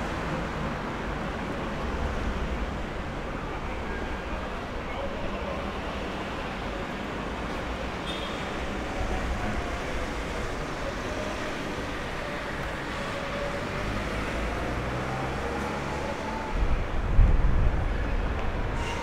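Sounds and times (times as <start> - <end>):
wind buffeting microphone: 16.5 - 18.8.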